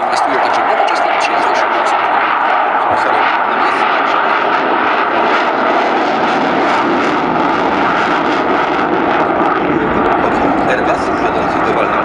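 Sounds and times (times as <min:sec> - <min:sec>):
jet engine roar with crackle: 0:00.0 - 0:12.0.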